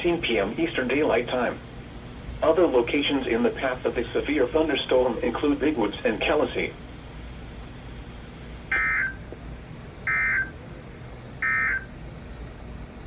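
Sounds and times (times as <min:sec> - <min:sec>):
low steady hum: 0:00.0 - 0:13.0
digital two-tone warble bursts: 0:08.7 - 0:09.2, 0:10.1 - 0:10.6, 0:11.4 - 0:11.9.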